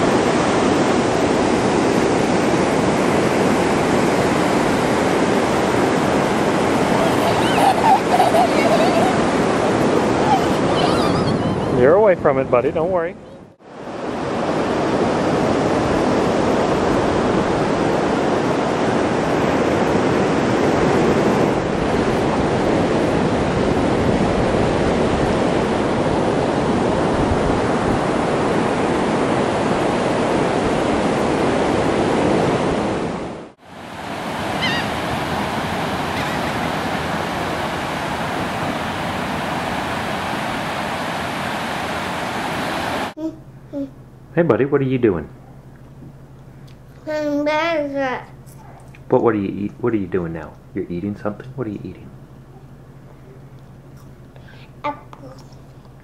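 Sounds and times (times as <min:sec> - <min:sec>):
ocean waves breaking: 0:00.0 - 0:44.0.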